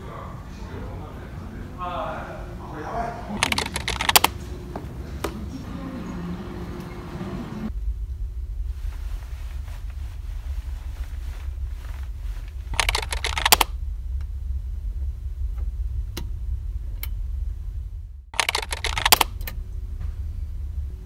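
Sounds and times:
ferry engines droning: 0.0 - 21.0
rustling and clicking handling noise: 3.4 - 5.4, 8.8 - 13.7, 18.4 - 19.6.

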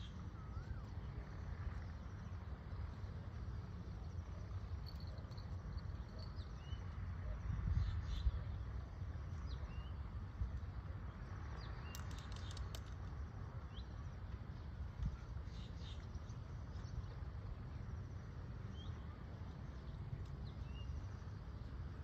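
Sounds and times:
steady low rumble: 0.0 - 22.0
birds chirping: 18.6 - 21.8.

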